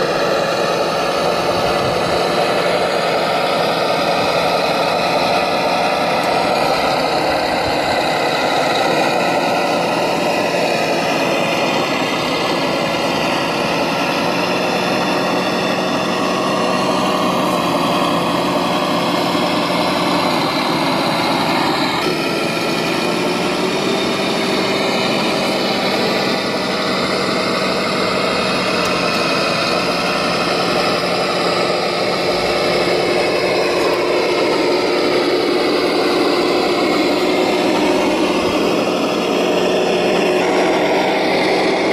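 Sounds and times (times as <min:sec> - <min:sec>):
toy tractor motor whirring: 0:00.0 - 0:41.9.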